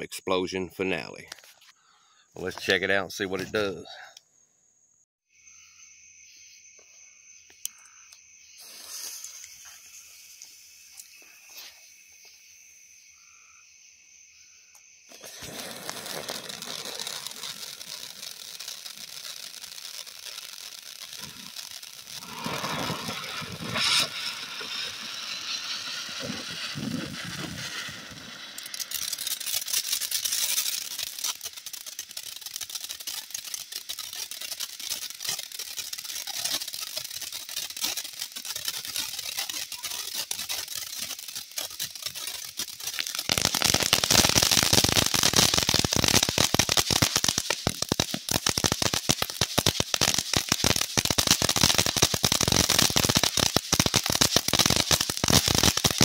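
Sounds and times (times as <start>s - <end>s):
fountain firework hissing sparks: 8.5s - 12.0s, 15.1s - 56.0s
firework crackling pops: 8.6s - 12.3s, 15.1s - 56.0s.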